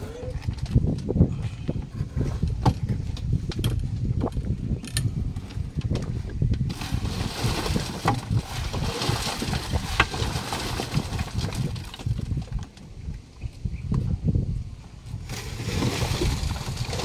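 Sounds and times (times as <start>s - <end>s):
wet concrete sloshing and scraping: 6.7s - 12.6s, 15.1s - 17.0s.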